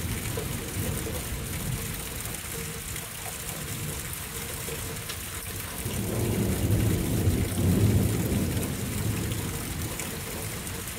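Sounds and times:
rain hiss: 0.0s - 10.9s.

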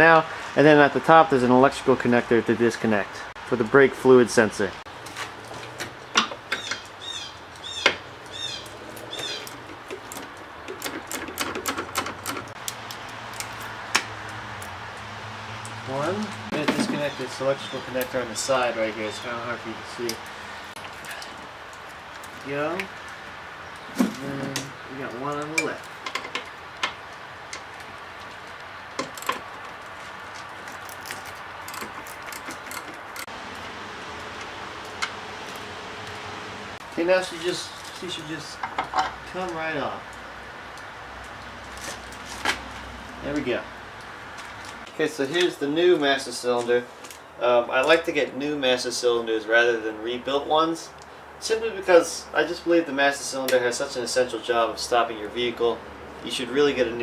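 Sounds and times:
hand tools clicking on metal: 8.6s - 15.0s, 25.3s - 33.3s.

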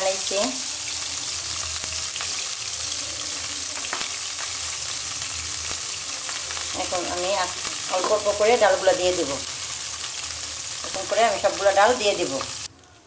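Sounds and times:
ghee sizzling in frying pan: 0.0s - 13.0s
sharp pops of hot fat: 3.8s - 4.6s.

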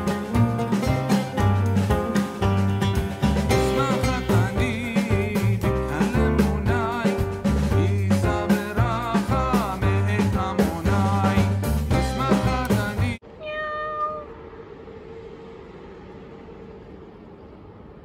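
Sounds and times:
upbeat background music: 0.0s - 13.2s
cat meowing: 13.3s - 14.4s.

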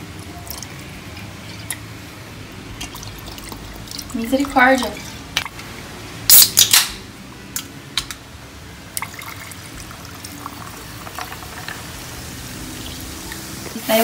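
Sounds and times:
tonic water pouring over ice: 9.0s - 13.6s.

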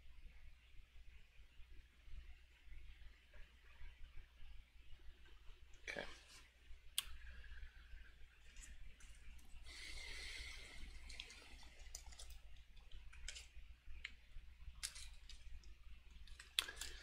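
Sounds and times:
steady low hum: 0.0s - 17.0s
plastic bag crinkle: 14.8s - 17.0s.

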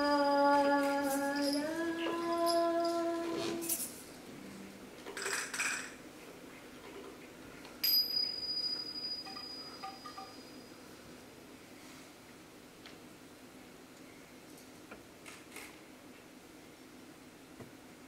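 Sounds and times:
high metallic ring: 7.8s - 10.8s.

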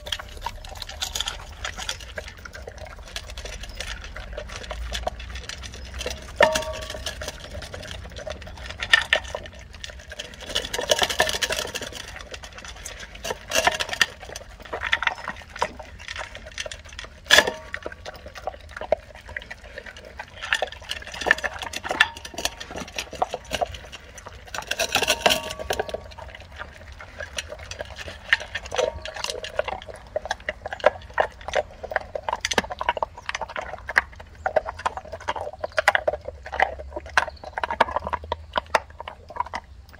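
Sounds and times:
metal bowl clinking: 0.0s - 12.5s, 20.4s - 26.4s
dog crunching and chewing food: 0.0s - 39.9s.

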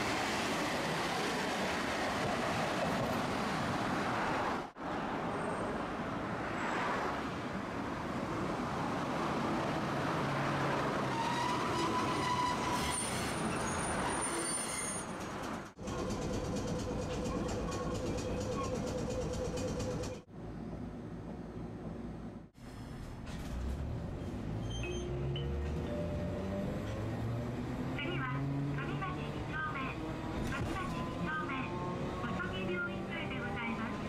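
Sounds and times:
road traffic: 0.0s - 34.0s
streetcar running on track: 0.0s - 34.0s
tram brake squeal: 11.1s - 20.0s, 24.1s - 25.6s.

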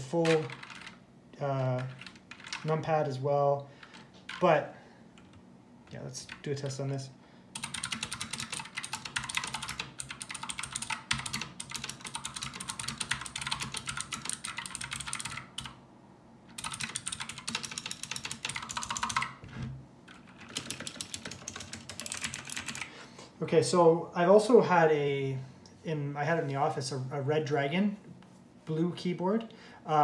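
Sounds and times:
mechanical keyboard typing: 0.1s - 1.0s, 1.6s - 2.9s, 6.2s - 6.8s, 7.6s - 15.8s, 16.5s - 19.4s, 20.1s - 22.9s.

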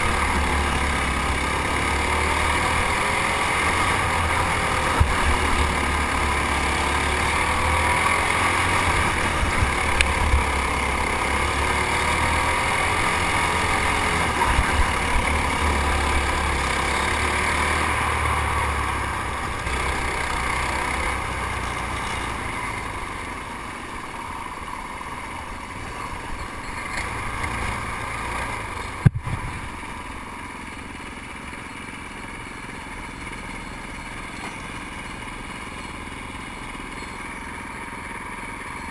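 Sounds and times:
kart engine revving: 0.0s - 38.9s
wind rumble on camera: 29.0s - 29.8s.

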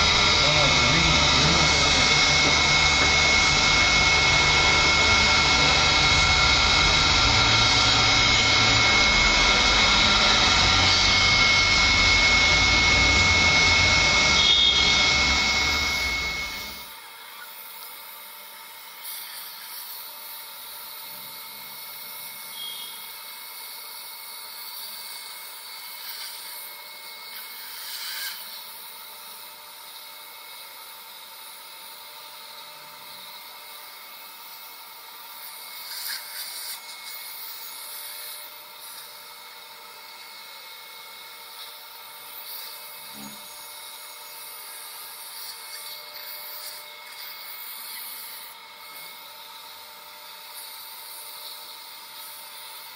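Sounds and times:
whistling tones: 14.3s - 16.7s, 22.5s - 23.1s
surgical suction hissing: 35.3s - 39.3s, 41.5s - 49.3s.

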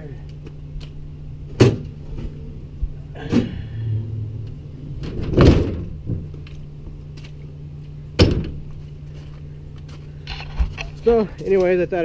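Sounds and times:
steady low hum: 0.0s - 12.0s
dull thuds: 5.0s - 6.4s, 8.1s - 8.8s.

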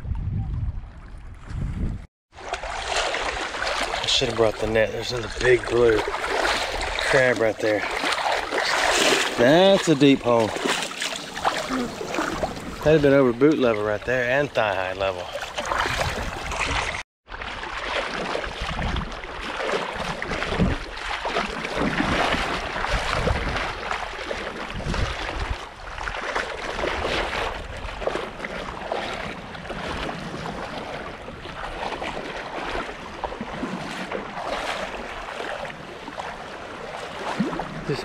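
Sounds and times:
wind buffeting microphone: 0.0s - 2.1s, 15.7s - 17.0s, 22.8s - 23.9s, 24.7s - 26.1s
small waves lapping: 2.3s - 38.0s.

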